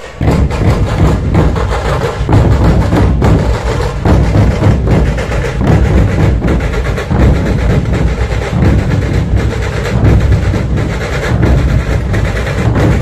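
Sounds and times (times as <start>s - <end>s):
barrel drums beating: 0.0s - 13.0s
tasha drums playing: 0.0s - 13.0s.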